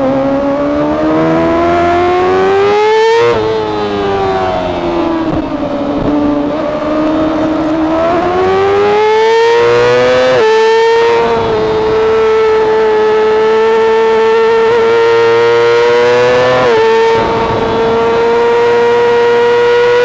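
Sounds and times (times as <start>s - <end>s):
motorcycle engine at high revs: 0.0s - 20.0s
wind rush: 16.2s - 18.9s.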